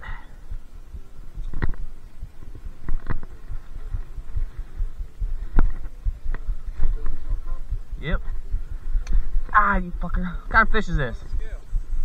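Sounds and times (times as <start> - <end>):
camera handling thumping and rubbing: 1.4 - 1.9, 2.8 - 3.7
sharp clicks and knocks: 1.4 - 1.9, 2.8 - 3.4.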